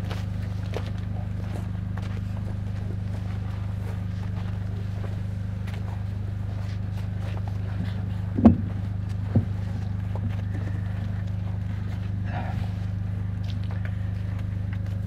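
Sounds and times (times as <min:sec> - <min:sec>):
electrical hum: 0:00.0 - 0:15.0
microphone stand thumps: 0:08.4 - 0:09.5.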